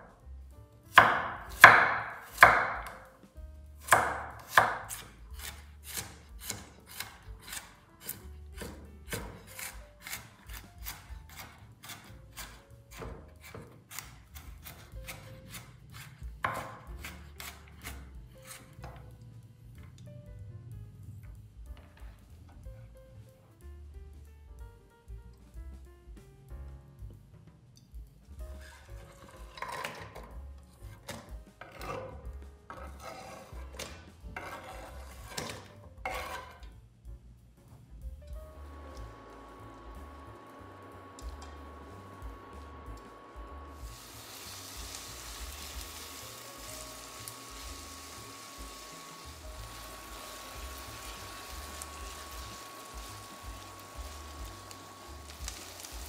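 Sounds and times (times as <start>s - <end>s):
background music: 0.0s - 56.0s
knife chopping on a cutting board: 0.9s - 3.1s, 3.8s - 19.1s, 28.5s - 36.6s
food scraping strokes: 13.3s - 18.8s, 31.7s - 36.6s, 43.8s - 56.0s.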